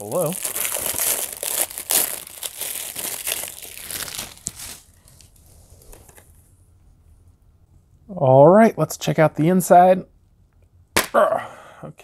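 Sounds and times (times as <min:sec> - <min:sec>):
plastic wrap crinkling and tearing: 0:00.0 - 0:05.4.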